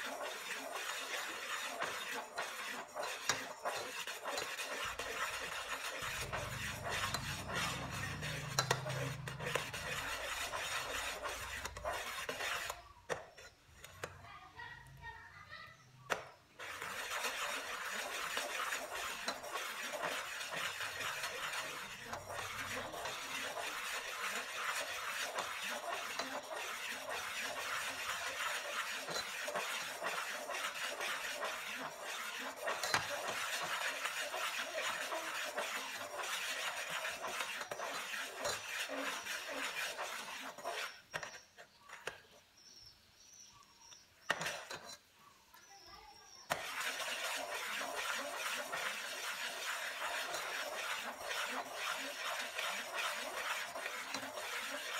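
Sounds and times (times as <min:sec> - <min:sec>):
metal ladle scraping a pot: 0:00.0 - 0:14.2, 0:15.8 - 0:42.2, 0:44.2 - 0:45.1, 0:46.5 - 0:54.9.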